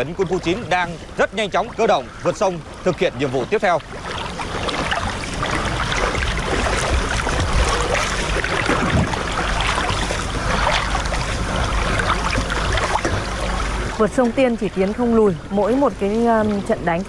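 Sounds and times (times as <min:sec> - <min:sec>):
water splashing and sloshing: 0:00.0 - 0:17.0.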